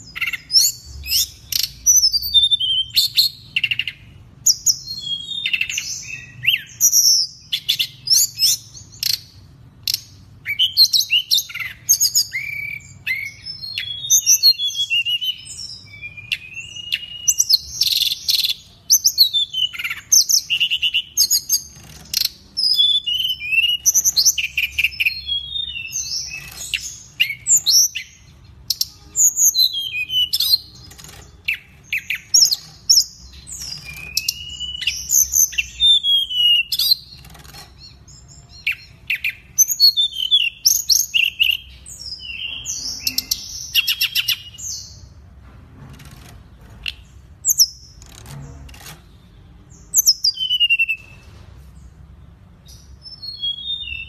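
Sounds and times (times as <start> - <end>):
bird singing: 0.0 - 45.2, 46.5 - 54.0.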